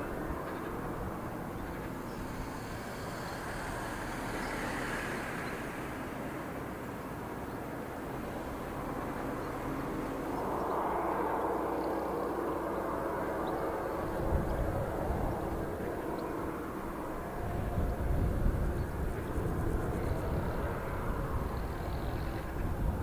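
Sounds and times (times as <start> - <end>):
low buffeting gusts: 0.0 - 23.0
wind rushing on microphone: 0.0 - 23.0.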